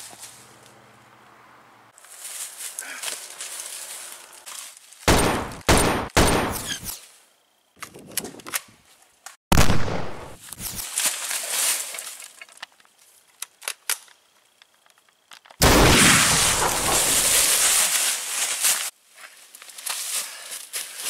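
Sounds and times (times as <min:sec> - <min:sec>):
loud booming gunshots: 0:05.1 - 0:06.9, 0:09.5 - 0:10.4, 0:15.6 - 0:17.5
rapid-fire gunfire burst: 0:05.1 - 0:06.9, 0:15.6 - 0:17.5
sharp thin gunshots: 0:05.1 - 0:06.9, 0:09.5 - 0:10.4, 0:15.6 - 0:17.6.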